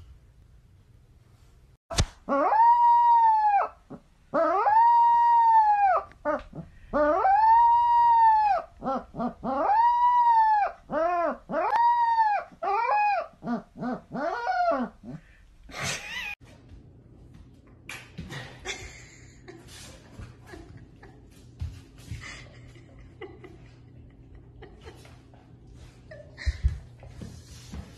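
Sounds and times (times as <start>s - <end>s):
sharp click: 1.9s - 2.2s
puppy howling and yipping: 2.3s - 15.2s.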